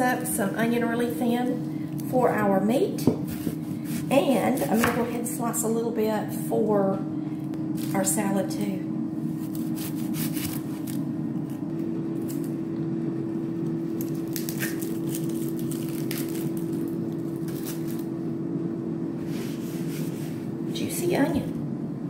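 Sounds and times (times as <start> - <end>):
air fryer hum: 0.0 - 22.0
onion skin crackling and rustling: 7.8 - 8.3, 9.3 - 12.5, 13.8 - 18.2.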